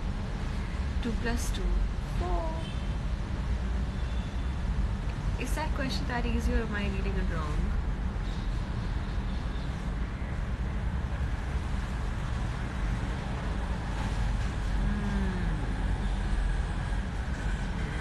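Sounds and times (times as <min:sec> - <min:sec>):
low rumble: 0:11.1 - 0:18.0.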